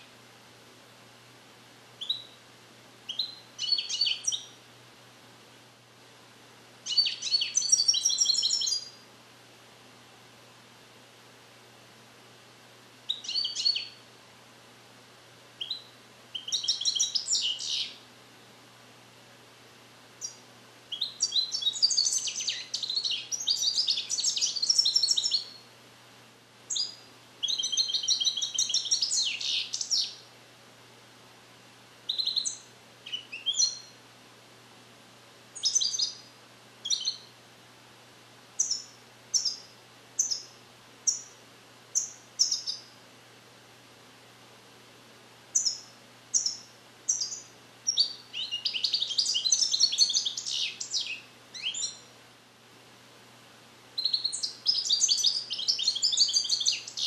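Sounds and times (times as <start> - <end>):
goldfinch singing: 2.0 - 2.4, 3.1 - 4.5, 6.9 - 9.0, 13.1 - 14.0, 15.6 - 18.0, 20.2 - 25.6, 26.7 - 30.2, 32.1 - 33.9, 35.6 - 37.3, 38.6 - 41.3, 42.0 - 42.9, 45.6 - 52.1, 54.0 - 57.0.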